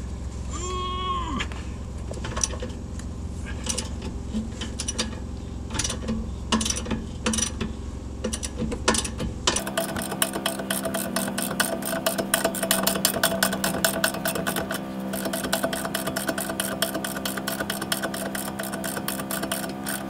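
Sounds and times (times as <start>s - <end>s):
steady low hum: 0.0s - 20.0s
ratchet wrench clicking: 8.2s - 20.0s.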